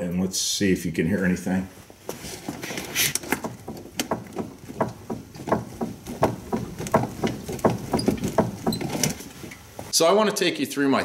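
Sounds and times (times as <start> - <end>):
car suspension clunking: 3.1 - 9.9.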